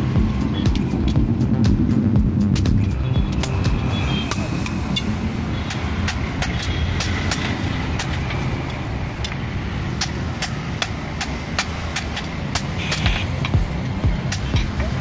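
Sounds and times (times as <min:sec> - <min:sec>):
low rumble: 0:00.0 - 0:07.0.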